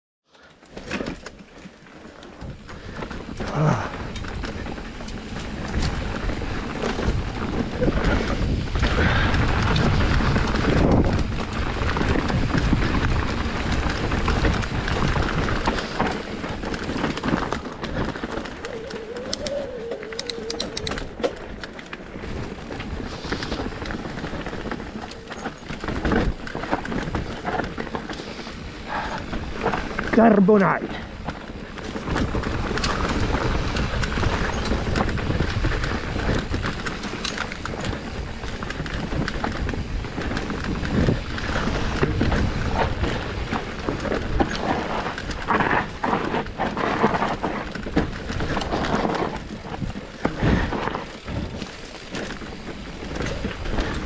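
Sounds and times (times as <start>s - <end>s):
bike tyres on dirt and leaves: 0.2s - 54.0s
bike knocking and rattling: 0.3s - 54.0s
wind on microphone: 2.4s - 21.6s.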